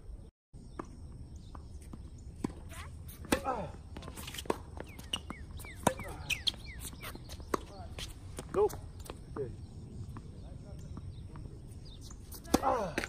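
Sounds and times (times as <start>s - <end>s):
ball bouncing: 0.7s - 6.6s
racket hitting tennis ball: 1.6s - 9.0s, 12.1s - 13.0s
shoe squeaks: 1.9s - 3.3s, 4.0s - 9.3s, 11.7s - 12.6s.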